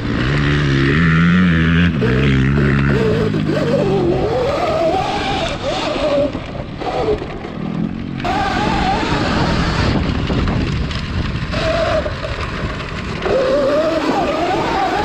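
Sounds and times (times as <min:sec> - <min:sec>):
tyres churning dirt: 0:00.0 - 0:15.0
wind rush on microphone: 0:08.2 - 0:15.0.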